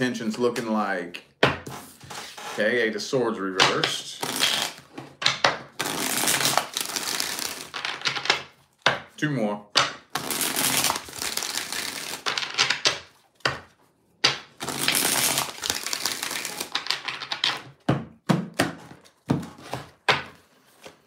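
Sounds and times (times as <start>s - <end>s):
cards riffling and sliding: 5.8s - 8.0s, 10.2s - 12.8s, 14.6s - 17.4s.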